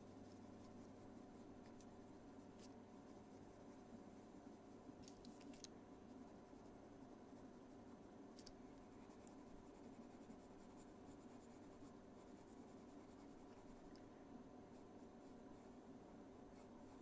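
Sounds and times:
pencil scratching on paper: 0:08.9 - 0:14.0, 0:16.5 - 0:17.0.

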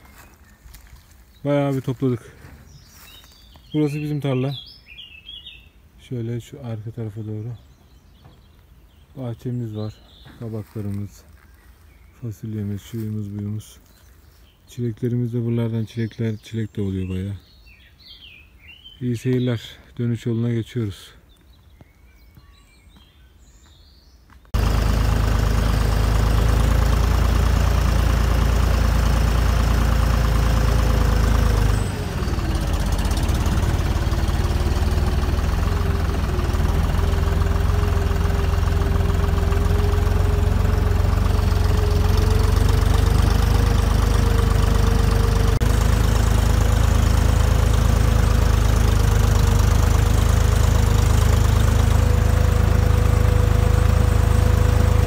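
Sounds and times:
tractor diesel engine running: 0:00.0 - 0:04.7, 0:09.2 - 0:11.5, 0:24.5 - 0:55.0.

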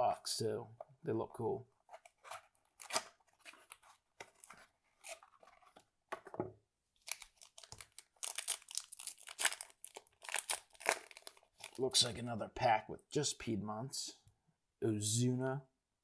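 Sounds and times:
foil card pack crinkling and tearing: 0:07.0 - 0:11.9.

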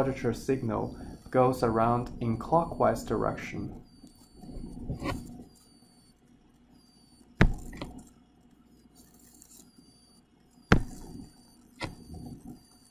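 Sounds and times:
computer mouse clicks: 0:07.4 - 0:08.1.

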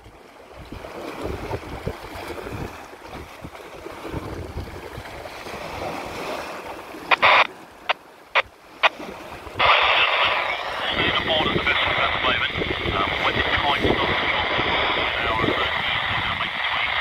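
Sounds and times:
wind buffeting microphone: 0:00.6 - 0:06.3, 0:09.4 - 0:17.0
radio scanner burst and clicks: 0:07.1 - 0:09.0, 0:09.6 - 0:17.0.

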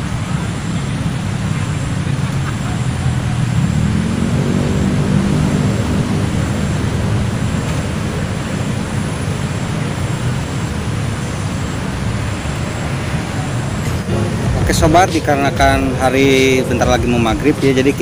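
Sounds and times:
airplane engine drone: 0:00.0 - 0:18.0.

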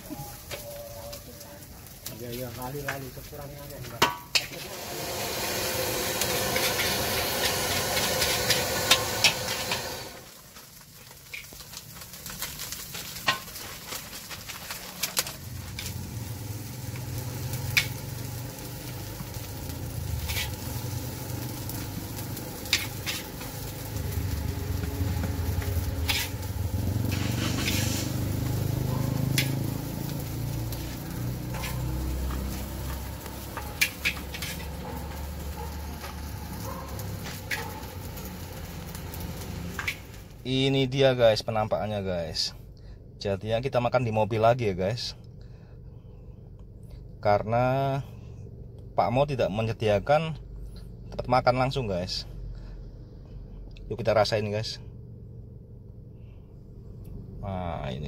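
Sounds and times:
food sizzling in a wok: 0:00.0 - 0:40.5
low rumble: 0:15.2 - 0:40.5.

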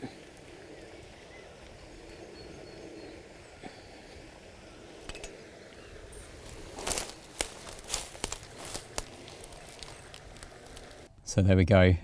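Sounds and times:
footsteps on twigs and leaves: 0:06.1 - 0:11.1.

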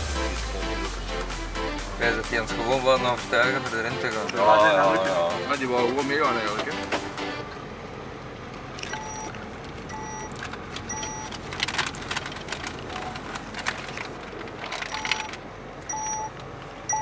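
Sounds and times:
van engine and road noise: 0:00.0 - 0:17.0
electronic warning chime beeping: 0:08.8 - 0:09.3, 0:09.9 - 0:10.3, 0:10.9 - 0:11.3, 0:15.9 - 0:16.3.

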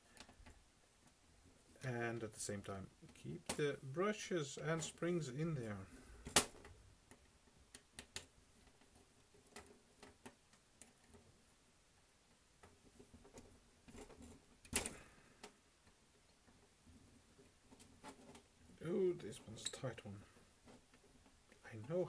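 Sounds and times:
faint clicks of small parts: 0:00.0 - 0:01.3, 0:04.8 - 0:22.0.

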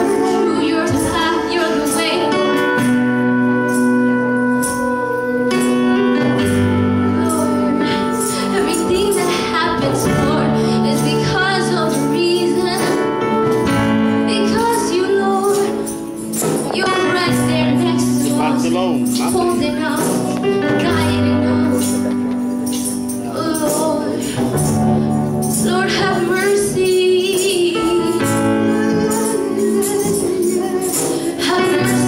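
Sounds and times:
held keyboard chords: 0:00.0 - 0:32.0
shaken jingling percussion: 0:00.0 - 0:32.0
person singing: 0:14.2 - 0:32.0.

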